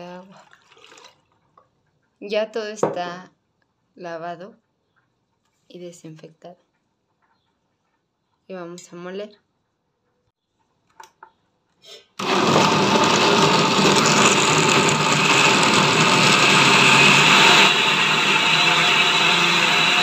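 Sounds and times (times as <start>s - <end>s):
blender running: 12.2s - 20.0s.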